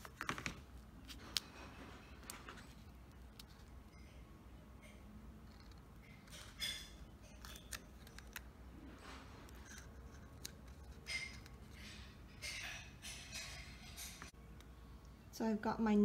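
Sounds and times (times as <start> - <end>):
plastic clicking and crinkling: 5.4 - 8.5.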